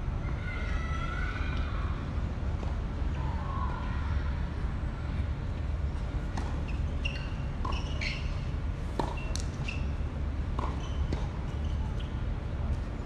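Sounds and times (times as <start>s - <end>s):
tennis ball bouncing and struck: 9.0s - 9.8s.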